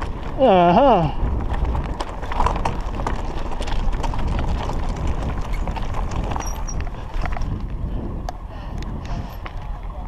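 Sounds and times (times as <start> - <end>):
bike knocks and rattles: 0.0 - 7.9
bike tyres crunching on stones: 0.0 - 10.0.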